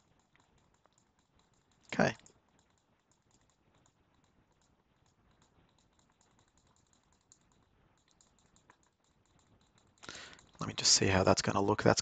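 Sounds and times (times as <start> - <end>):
computer mouse clicking: 0.0 - 10.8.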